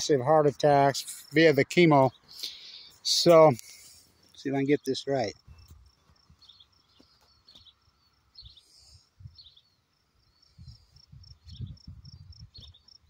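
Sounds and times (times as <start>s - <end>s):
crickets chirping: 0.5s - 13.0s
wind on microphone: 9.2s - 9.6s, 10.5s - 13.0s.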